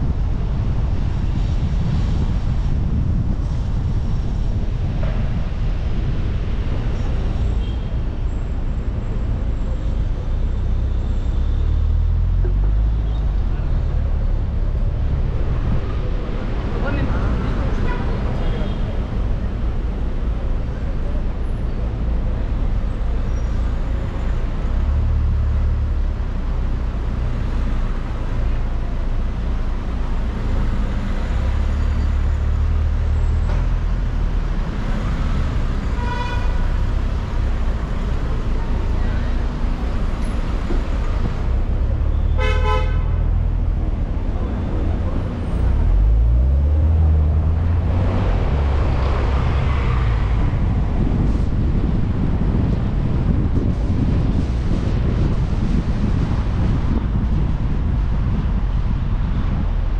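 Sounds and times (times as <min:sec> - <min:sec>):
car road and engine rumble: 0:00.0 - 0:59.9
car horn honk: 0:35.9 - 0:36.7, 0:42.2 - 0:43.4.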